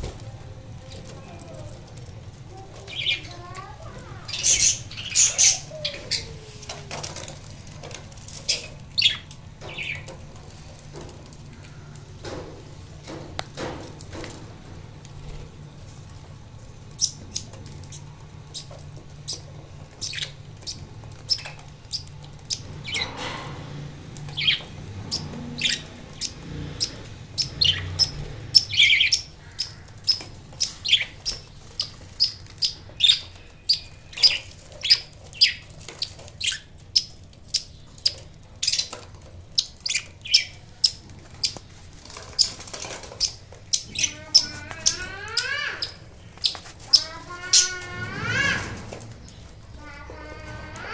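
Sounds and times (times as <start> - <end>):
budgerigars chirping: 4.3 - 6.3, 8.3 - 10.2, 17.0 - 23.3, 24.3 - 50.9
wavering bird call: 43.9 - 46.1, 46.9 - 49.0.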